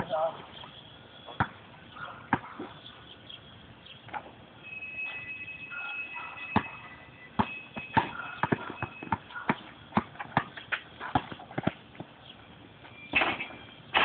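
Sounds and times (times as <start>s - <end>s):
basketball bouncing on asphalt: 0.7s - 3.0s, 6.4s - 13.8s.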